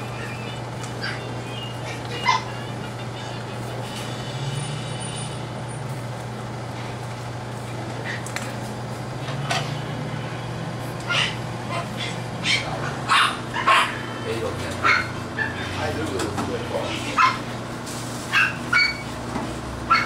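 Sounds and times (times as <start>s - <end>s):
puppies yipping and whimpering: 0.0s - 3.2s, 11.0s - 14.1s, 14.7s - 16.0s, 18.3s - 19.2s.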